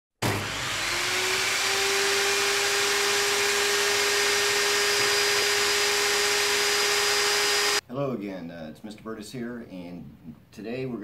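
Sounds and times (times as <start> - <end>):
motor whining: 0.2 - 7.8.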